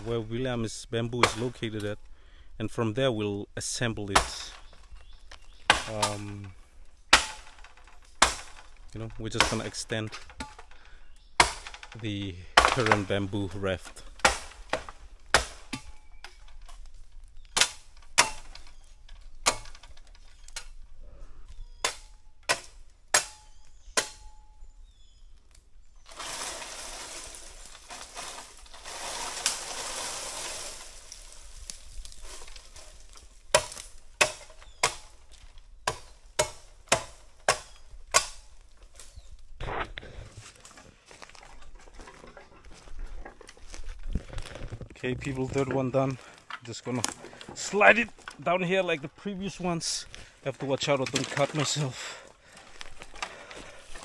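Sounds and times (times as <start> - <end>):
blade chopping bamboo: 7.1 - 8.7, 9.3 - 10.6, 11.4 - 12.0, 12.6 - 13.2, 13.9 - 16.4, 17.6 - 18.8, 21.8 - 24.4, 33.5 - 35.2, 35.8 - 38.5
bamboo pole dragged through leaves: 26.1 - 33.1.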